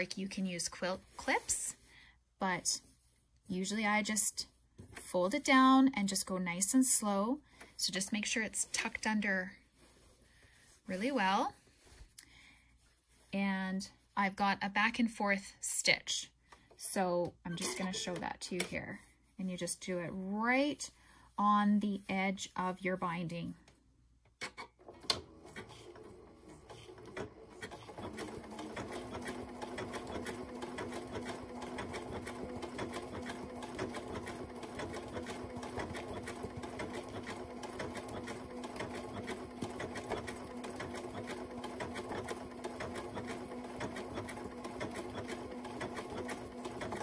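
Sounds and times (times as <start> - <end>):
sewing machine stitching: 24.5 - 47.0.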